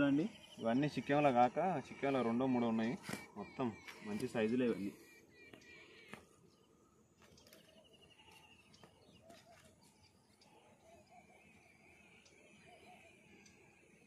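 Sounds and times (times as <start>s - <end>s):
high warbling bird trill: 0.0s - 14.0s
lower wavering bird call: 7.6s - 14.0s.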